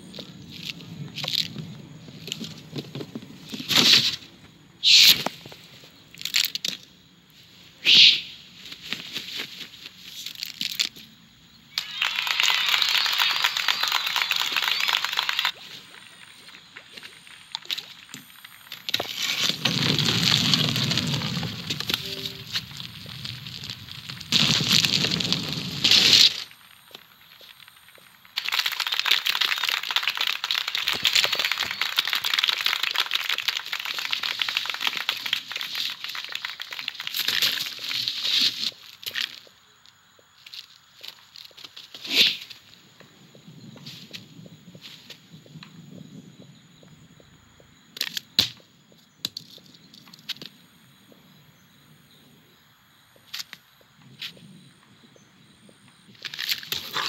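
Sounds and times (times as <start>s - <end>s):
faint outdoor ambience: 0.0s - 57.0s
dense continuous crackling: 11.8s - 39.3s.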